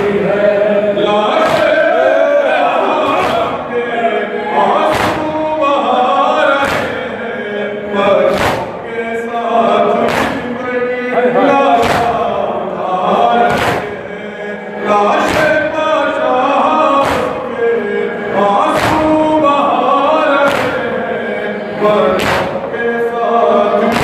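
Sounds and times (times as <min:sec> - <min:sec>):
men chanting in chorus: 0:00.0 - 0:24.0
hands beating chests: 0:03.1 - 0:03.6, 0:04.9 - 0:05.4, 0:06.6 - 0:07.1, 0:08.3 - 0:08.8, 0:10.1 - 0:10.5, 0:11.8 - 0:12.2, 0:13.5 - 0:14.0, 0:17.0 - 0:17.4, 0:18.7 - 0:19.2, 0:20.4 - 0:20.8, 0:22.2 - 0:22.7.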